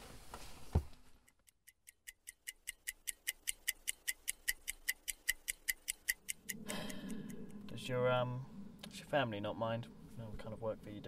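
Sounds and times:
clock ticking quickly: 1.4 - 7.5.

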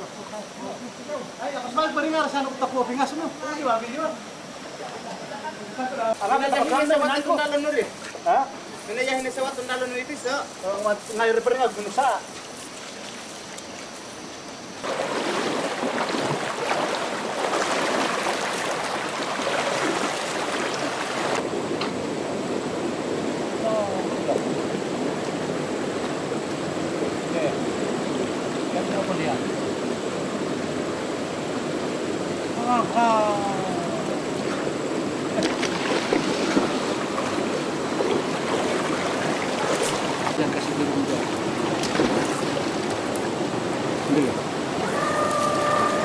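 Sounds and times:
people wading splashing: 11.7 - 21.5, 32.5 - 46.0
river water rushing over rocks: 14.8 - 21.8, 33.9 - 46.0.

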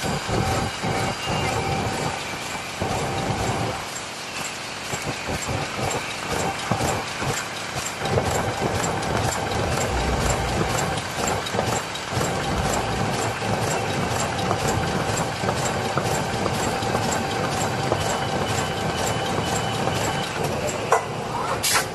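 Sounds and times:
fast regular machine clicking: 0.0 - 20.9
machine hum: 8.1 - 17.2.

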